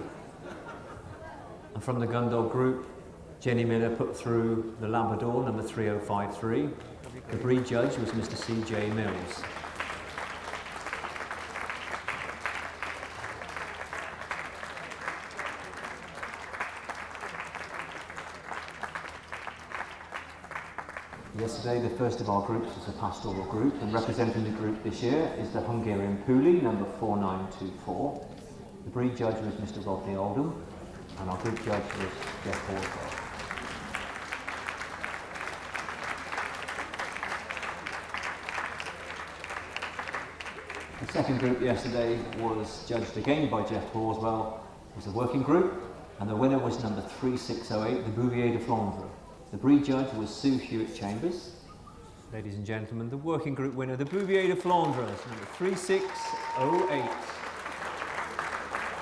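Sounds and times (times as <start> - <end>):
audience applauding: 6.8 - 22.7, 31.0 - 43.9, 54.0 - 59.0.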